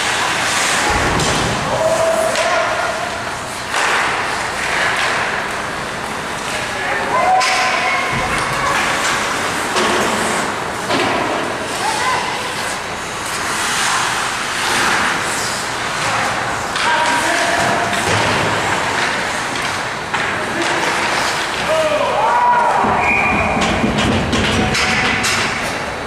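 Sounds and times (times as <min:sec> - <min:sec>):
skates scraping ice: 0:00.0 - 0:22.0
sticks and puck clacking: 0:00.0 - 0:26.0
players shouting: 0:01.6 - 0:03.3, 0:21.6 - 0:23.7.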